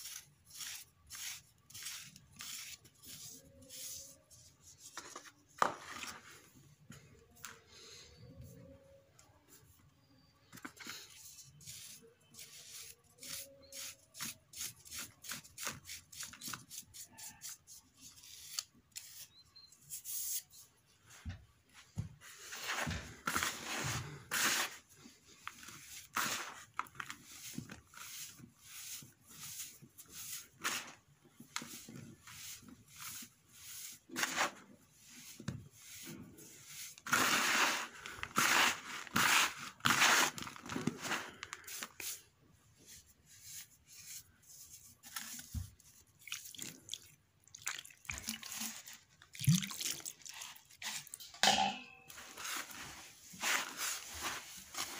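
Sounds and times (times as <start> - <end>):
hands crunching dry cement mix: 36.7 - 42.2.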